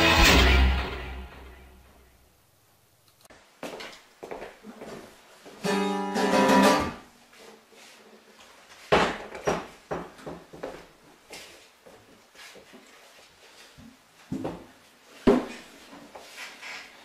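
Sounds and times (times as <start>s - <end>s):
acoustic guitar chord strummed: 0.0s - 1.9s, 5.6s - 7.0s.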